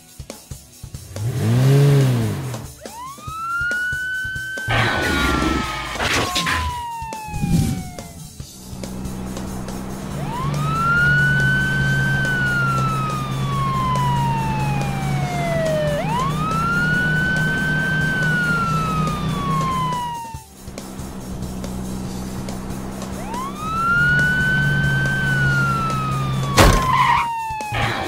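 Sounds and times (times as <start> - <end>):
police siren wailing: 2.6 - 28.0.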